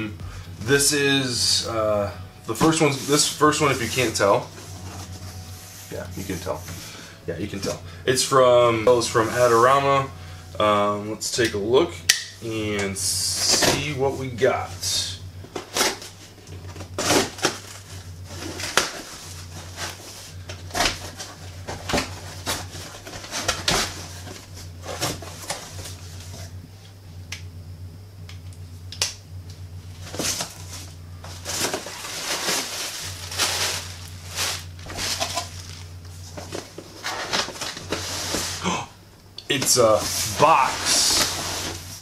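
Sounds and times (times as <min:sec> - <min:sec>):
low fan hum: 0:00.0 - 0:42.0
cardboard flaps scraping and knocking: 0:30.0 - 0:38.6.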